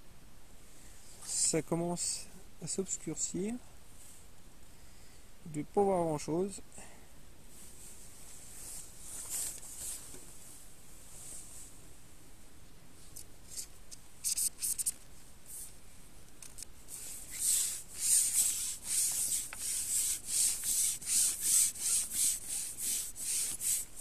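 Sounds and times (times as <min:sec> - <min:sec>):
fishing pole scraping on clothing: 0:16.9 - 0:23.9
fishing pole swishing rubs: 0:16.9 - 0:23.9.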